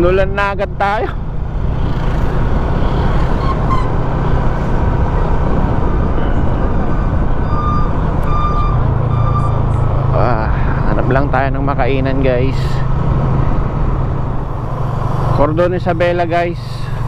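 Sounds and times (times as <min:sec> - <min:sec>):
vehicle road and wind noise: 0:00.0 - 0:17.0
short beeps: 0:06.2 - 0:09.8.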